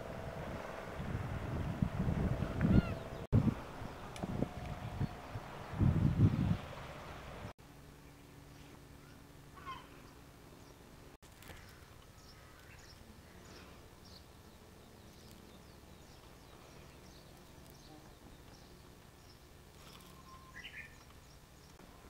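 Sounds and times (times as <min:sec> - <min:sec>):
low steady hum: 0:00.0 - 0:22.0
small bird chirping: 0:11.4 - 0:21.8.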